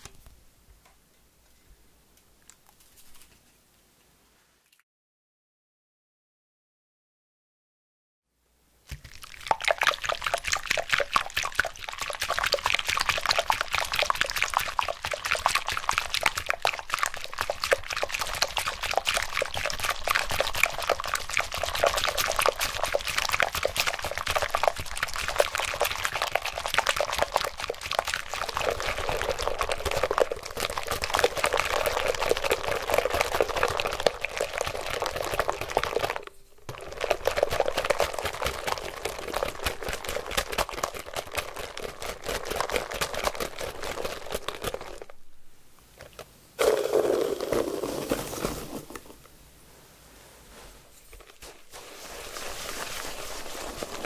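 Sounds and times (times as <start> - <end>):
whisk sloshing cream: 8.9 - 45.1, 51.2 - 54.0.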